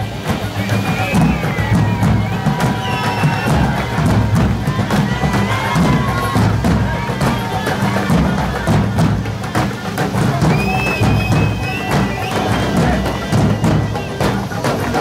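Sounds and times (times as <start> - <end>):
festive dance music: 0.0 - 15.0.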